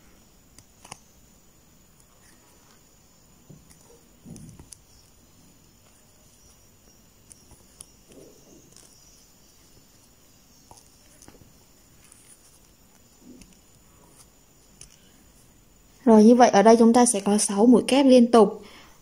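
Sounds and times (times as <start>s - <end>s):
crochet hook clicking: 0.6s - 1.1s, 3.6s - 5.1s, 14.2s - 15.0s.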